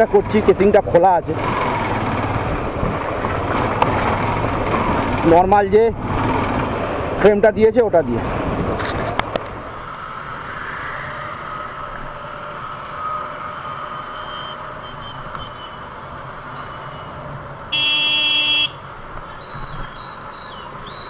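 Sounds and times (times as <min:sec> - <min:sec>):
motorcycle engine: 0:00.0 - 0:10.0
city traffic: 0:00.0 - 0:21.0
vehicle horn: 0:17.7 - 0:18.8.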